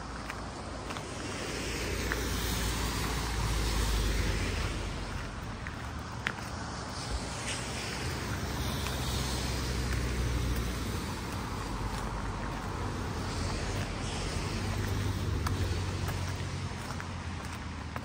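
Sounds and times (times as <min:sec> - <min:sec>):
cars passing: 0:00.0 - 0:18.0.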